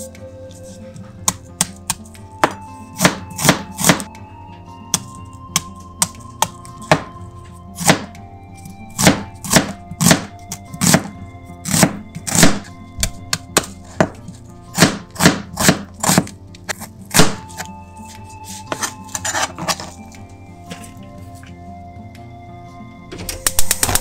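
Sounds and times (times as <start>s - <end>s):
knife slicing onion on cutting board: 0.6s - 4.1s, 7.8s - 8.1s, 9.0s - 20.0s.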